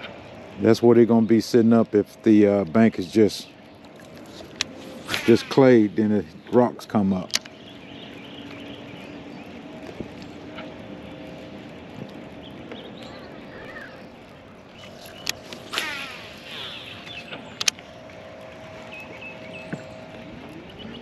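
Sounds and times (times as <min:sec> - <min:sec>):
electric trolling motor humming: 0:07.4 - 0:20.8
fishing reel whirring: 0:13.2 - 0:18.0
sharp clicks: 0:13.5 - 0:16.0.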